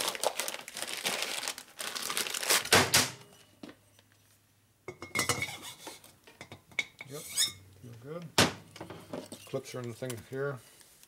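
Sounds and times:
plastic bag crinkling: 0.0 - 2.8.

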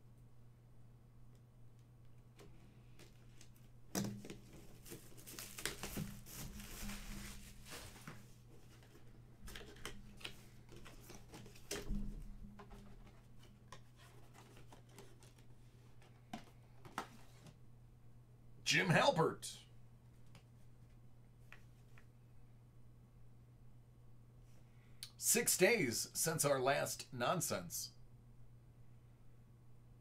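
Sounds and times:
cardboard packaging rustling and tearing: 4.3 - 11.7.

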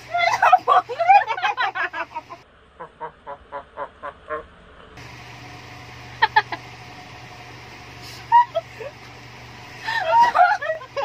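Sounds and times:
women laughing: 0.0 - 2.4, 6.2 - 6.7, 8.0 - 9.1, 9.8 - 11.0.

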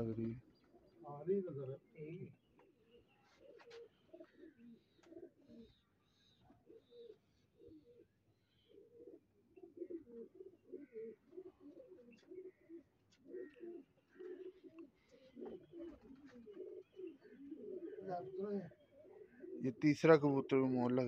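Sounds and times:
pigeons cooing: 0.0 - 21.0.

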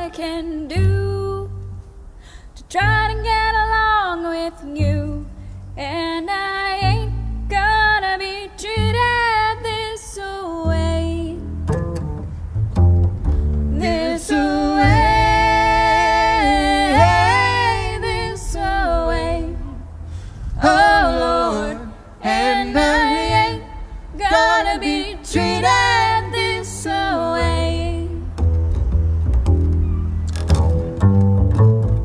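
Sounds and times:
upright bass: 4.8 - 6.1, 6.8 - 8.1, 8.7 - 9.9, 10.6 - 32.0
woman and man singing harmony: 13.8 - 19.9, 20.6 - 28.2.

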